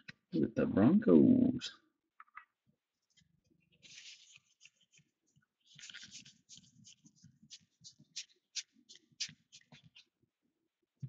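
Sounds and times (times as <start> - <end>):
trading cards rustling and clicking: 3.2 - 10.1.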